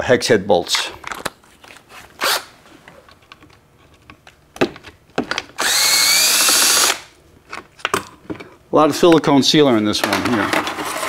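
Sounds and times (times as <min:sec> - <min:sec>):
cordless drill whining: 0:02.2 - 0:02.5, 0:05.6 - 0:07.1.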